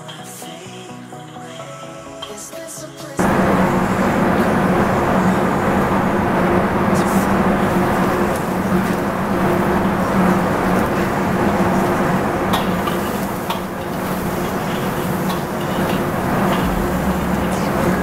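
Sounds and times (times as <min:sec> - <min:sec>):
kitchen hum: 0:03.2 - 0:18.0
shallots and garlic sizzling in oil: 0:07.3 - 0:18.0.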